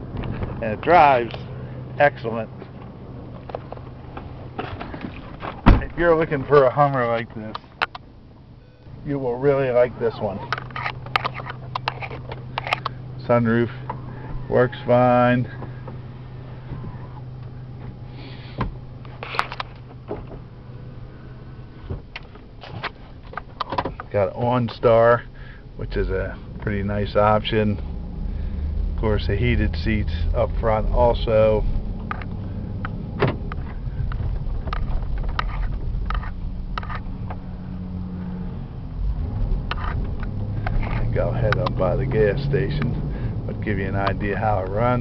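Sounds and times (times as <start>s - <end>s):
car cabin hum: 0.0s - 45.0s
engine and road rumble: 0.0s - 45.0s
sharp clicks and knocks: 10.5s - 13.0s, 21.9s - 24.2s, 32.0s - 37.4s, 39.6s - 41.8s.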